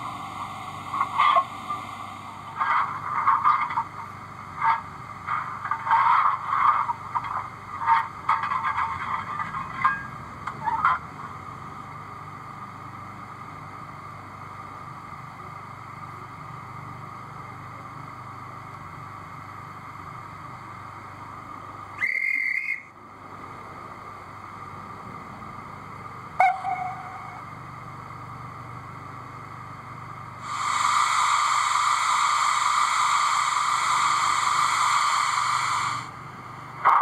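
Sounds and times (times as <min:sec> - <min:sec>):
model locomotive low hum: 0:00.0 - 0:37.0
locomotive whistle: 0:22.0 - 0:23.0, 0:26.4 - 0:27.4, 0:30.5 - 0:36.1.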